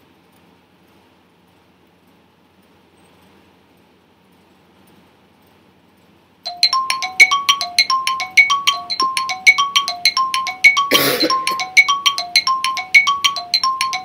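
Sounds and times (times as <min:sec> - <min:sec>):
countdown timer chiming notes: 0:06.5 - 0:14.0.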